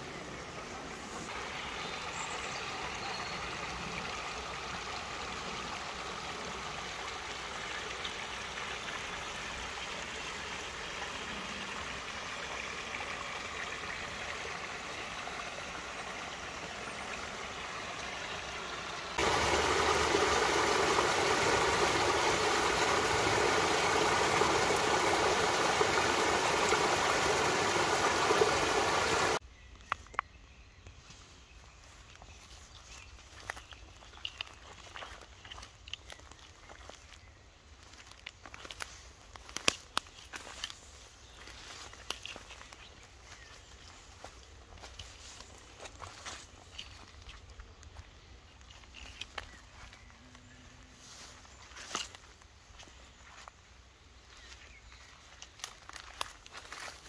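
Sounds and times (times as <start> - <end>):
running water rushing: 0.0 - 29.4
stream trickling and gurgling: 0.0 - 29.4, 31.7 - 57.0.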